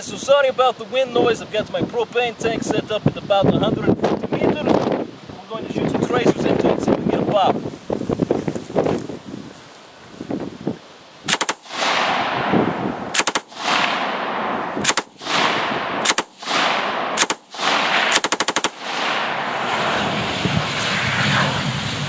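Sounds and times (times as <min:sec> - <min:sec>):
machine gun bursts: 0:11.3 - 0:11.7, 0:13.2 - 0:13.6, 0:14.8 - 0:15.2, 0:16.0 - 0:16.4, 0:17.2 - 0:17.5, 0:18.1 - 0:18.9
loud rushing noise: 0:11.6 - 0:22.0.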